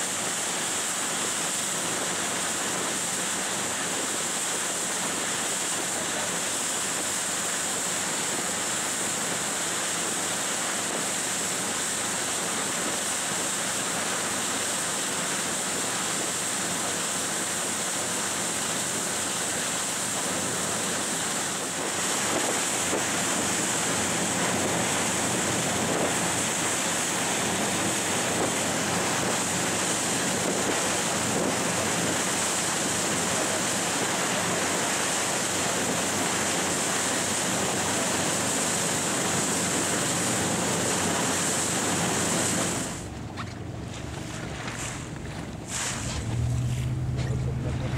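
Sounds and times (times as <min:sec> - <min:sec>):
rushing water: 0:00.0 - 0:47.9
rushing wind: 0:20.2 - 0:47.2.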